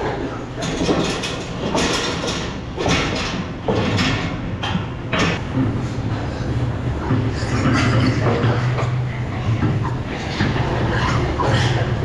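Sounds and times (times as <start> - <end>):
steady low hum: 0.0 - 12.0
hogs squealing and grunting: 10.2 - 12.0.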